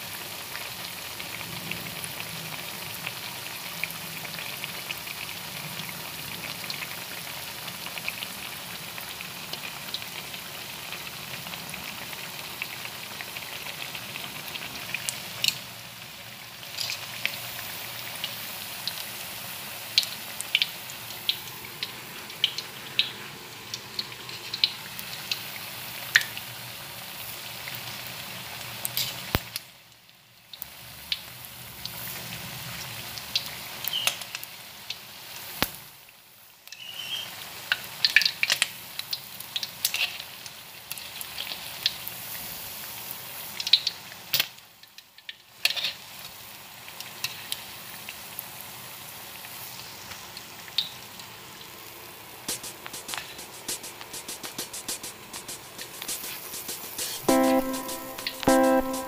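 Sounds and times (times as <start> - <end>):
food sizzling in hot oil: 0.0 - 59.0.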